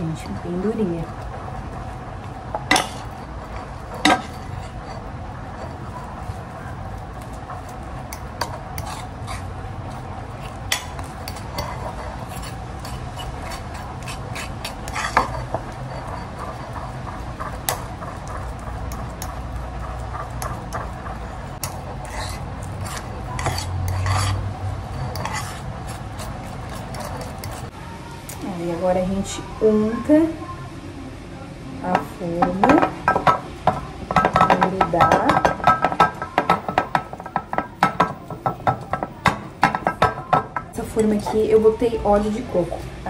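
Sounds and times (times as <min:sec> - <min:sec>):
fork mashing dough: 0:00.8 - 0:27.8, 0:31.9 - 0:43.0
fork scraping and clinking on plate: 0:08.1 - 0:09.5, 0:10.4 - 0:18.2, 0:21.6 - 0:27.7.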